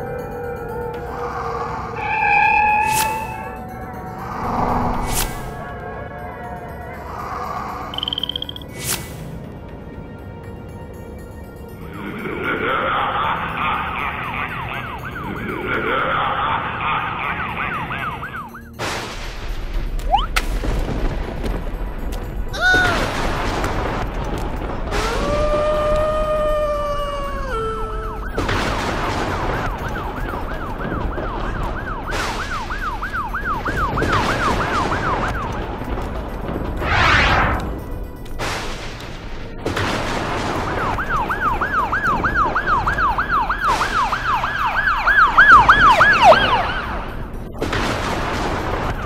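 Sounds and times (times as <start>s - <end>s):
spooky background music: 0.0s - 49.0s
long tone dropping in pitch: 3.3s - 5.9s
whooshes: 4.2s - 5.7s, 36.8s - 37.8s
cartoon siren warbling: 13.2s - 18.7s, 25.1s - 28.5s, 41.2s - 47.1s.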